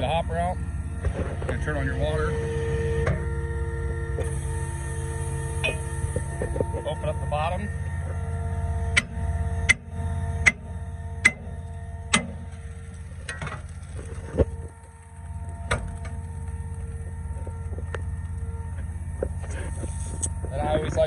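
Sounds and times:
pump engine running: 0:00.0 - 0:21.0
hammer striking steel: 0:08.9 - 0:11.5, 0:12.1 - 0:12.4.

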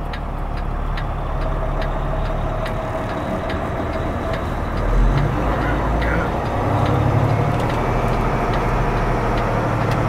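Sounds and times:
diesel engine idling: 0:00.0 - 0:10.0
turn signal ticking: 0:00.0 - 0:10.0.

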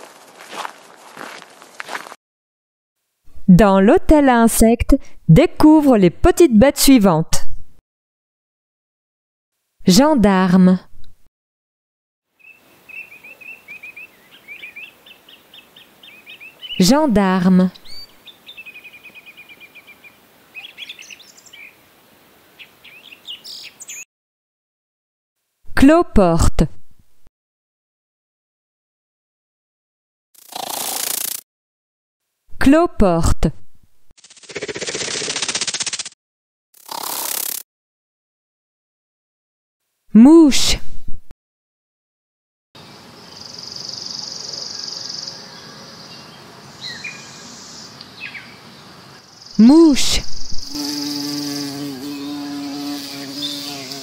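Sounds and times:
small birds singing: 0:12.4 - 0:16.9, 0:17.8 - 0:21.8, 0:22.6 - 0:24.1, 0:42.8 - 0:49.6, 0:51.4 - 0:54.0.

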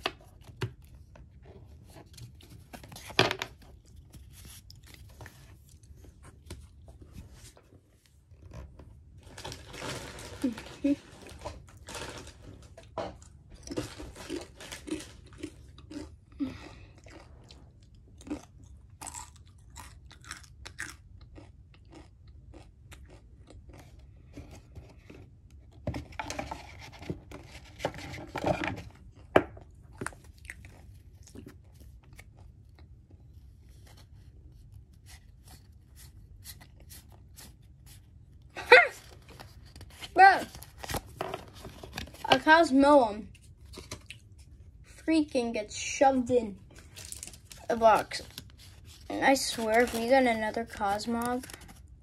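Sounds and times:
crunching and crinkling: 0:08.2 - 0:34.5, 0:46.6 - 0:52.0.

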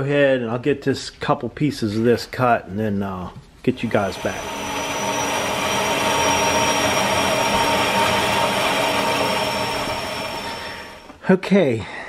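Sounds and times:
faint high whine: 0:03.7 - 0:11.2
band saw cutting steel: 0:03.8 - 0:11.2.

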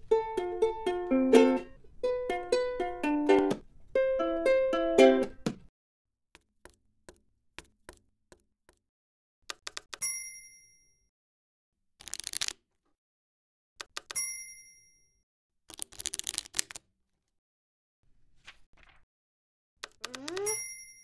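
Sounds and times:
typewriter bell ding: 0:10.0 - 0:11.1, 0:14.2 - 0:15.2, 0:20.4 - 0:21.0.

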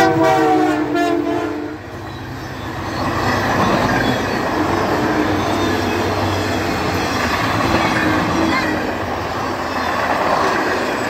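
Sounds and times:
train wheels rumbling on rails: 0:00.0 - 0:11.0
faint wheel squeal: 0:02.0 - 0:08.8.

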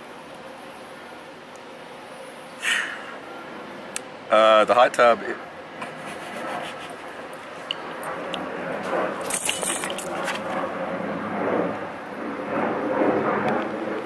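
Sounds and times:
fur rubbing against microphone: 0:05.8 - 0:07.7, 0:08.6 - 0:10.8
chain collar jangling: 0:08.8 - 0:10.6.

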